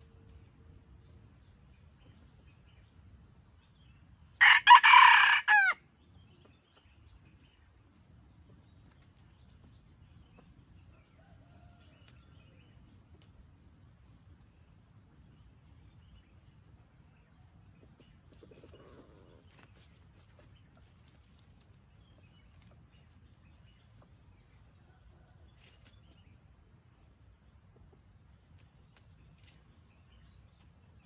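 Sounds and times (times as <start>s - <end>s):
rooster crowing: 4.4s - 5.8s.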